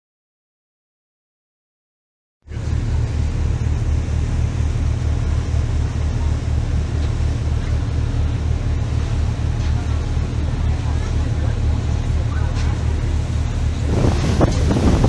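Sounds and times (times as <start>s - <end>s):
boat engine throbbing: 2.5s - 15.0s
rush of wind and water: 2.5s - 15.0s.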